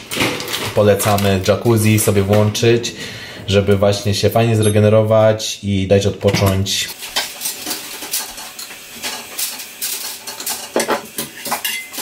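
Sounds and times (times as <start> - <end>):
dishes and cutlery clattering: 6.3 - 12.0.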